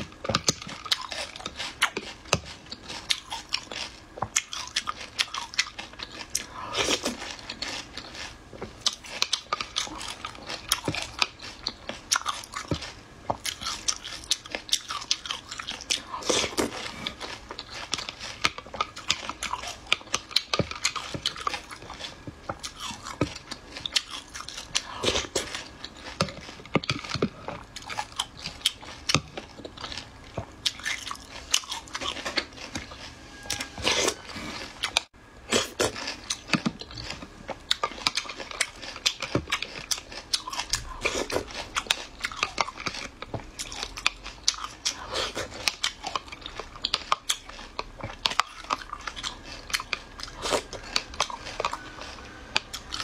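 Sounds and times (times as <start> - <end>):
crunching and chewing snails: 0.0 - 53.0.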